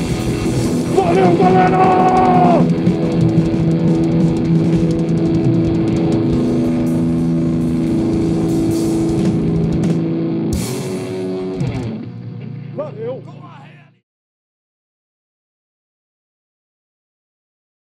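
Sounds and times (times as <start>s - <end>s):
rock band playing: 0.0s - 13.8s
electric guitar chords: 0.0s - 14.0s.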